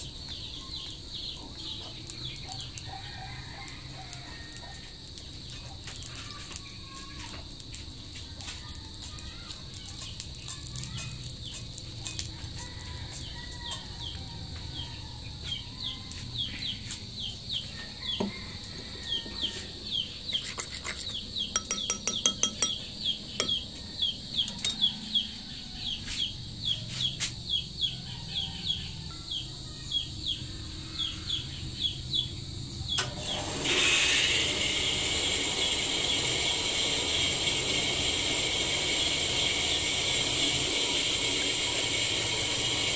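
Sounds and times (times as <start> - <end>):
batter sizzling in hot pan: 0.0 - 27.4, 30.1 - 42.9
spoon whisking batter in bowl: 20.3 - 22.8, 24.5 - 24.8.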